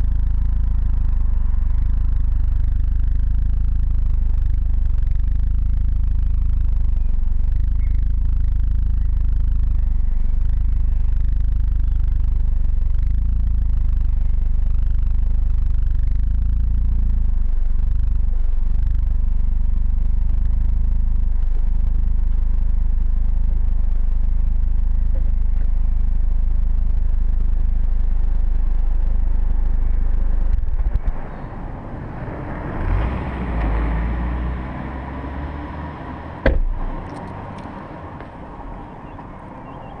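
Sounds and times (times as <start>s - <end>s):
car engine idling: 0.0s - 40.0s
sharp knock: 36.4s - 36.7s.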